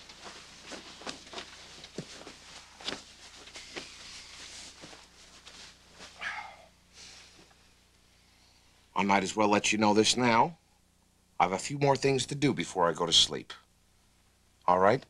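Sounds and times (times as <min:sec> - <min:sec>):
bedclothes rustling: 0:00.0 - 0:06.5.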